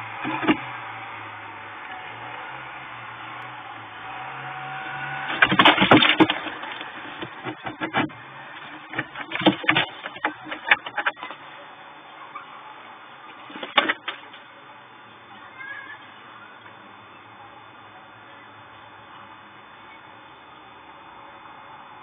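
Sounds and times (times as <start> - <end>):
birds scrabbling and flapping wings: 5.0 - 11.5.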